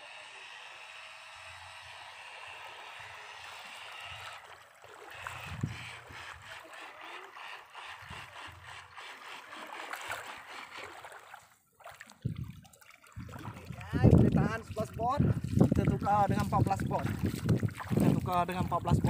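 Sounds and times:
water sloshing around legs: 3.4s - 19.0s
heavy splashes from steps: 16.5s - 18.5s.

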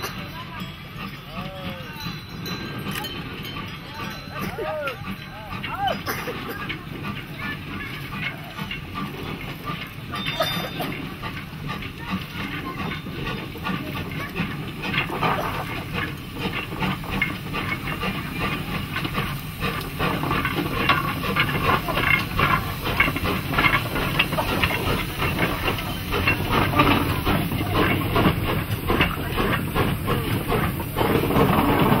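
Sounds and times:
loaded wagons rumbling: 0.0s - 32.0s
steam hissing: 0.0s - 32.0s
steam locomotive exhaust chuffing: 0.0s - 32.0s.

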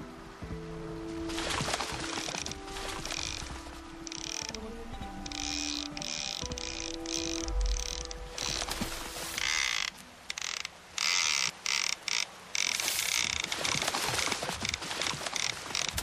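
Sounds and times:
fishing reel ratchet clicking: 4.1s - 4.6s, 5.2s - 8.6s, 9.4s - 13.5s.

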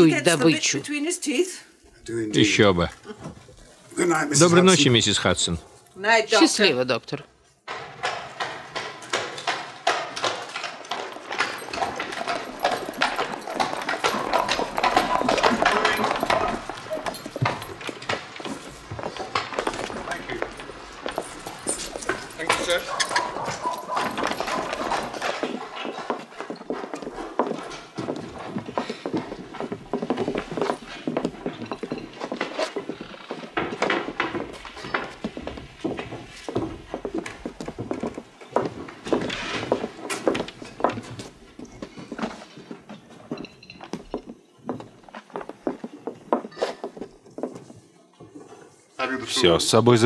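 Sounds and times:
horse hooves clip-clopping: 7.6s - 50.0s
crockery and cutlery clinking: 7.7s - 28.3s, 30.3s - 36.0s, 43.2s - 44.1s.

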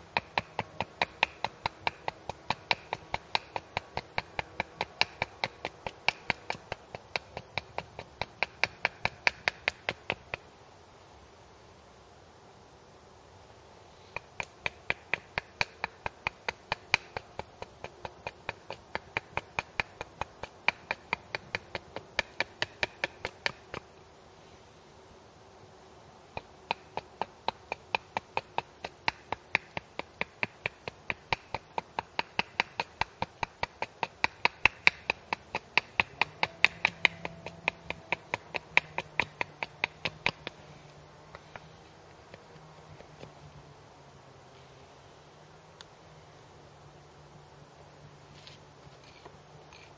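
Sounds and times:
axe chopping wood: 0.0s - 10.4s, 14.1s - 23.9s, 26.3s - 40.7s.

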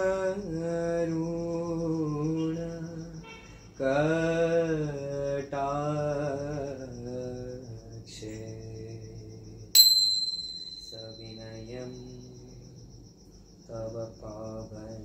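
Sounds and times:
crickets chirping: 0.0s - 15.0s
metal hand bell ringing: 9.8s - 11.7s.

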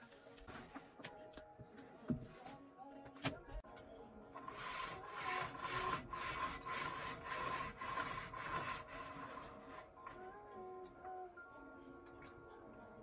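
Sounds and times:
roller blind cord rubbing: 4.4s - 10.1s.

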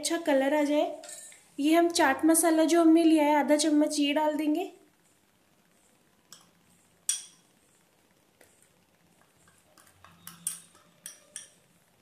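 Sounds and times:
glass bowl clinking on steel bowl: 9.8s - 11.6s.

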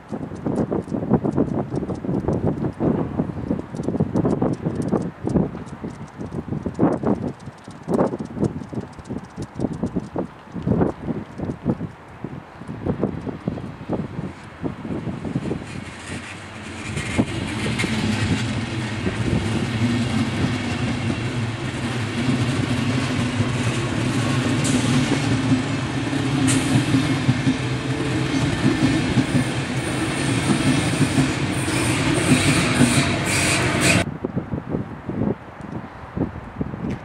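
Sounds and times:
train rumble: 0.0s - 34.1s
train wheels clacking on rail joints: 3.5s - 13.7s, 14.9s - 34.1s.

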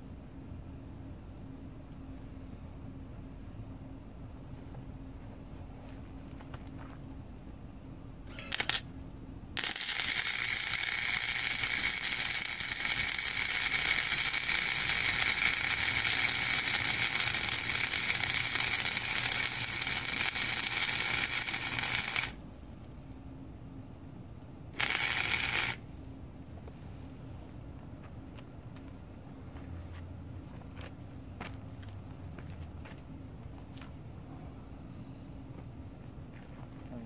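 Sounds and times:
welder arc crackling: 8.5s - 8.8s, 9.6s - 22.4s, 24.8s - 25.8s.

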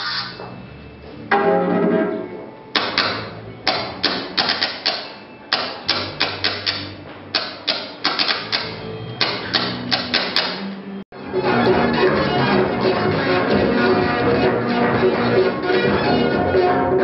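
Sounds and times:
synth chord: 0.0s - 4.6s
low bass notes: 0.0s - 17.0s
clattering electronic beat: 1.3s - 15.9s.

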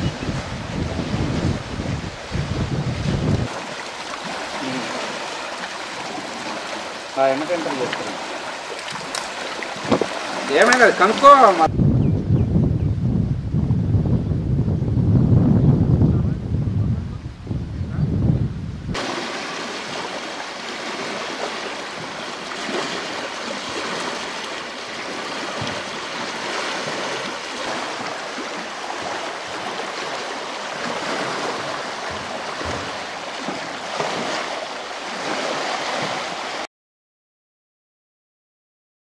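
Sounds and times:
small waves lapping on stone shore: 0.0s - 11.7s, 19.0s - 36.7s.

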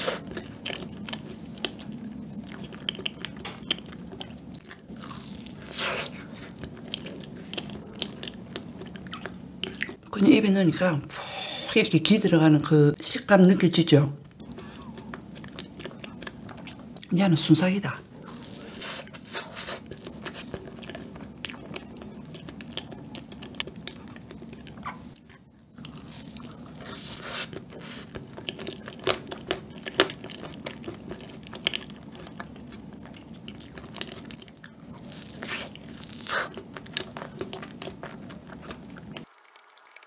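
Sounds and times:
biting and chewing soft cake: 0.0s - 10.0s, 18.1s - 39.3s.

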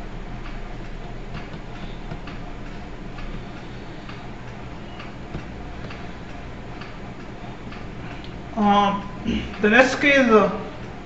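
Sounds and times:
steady low hum: 0.0s - 11.0s
faint regular ticks: 0.4s - 8.5s.

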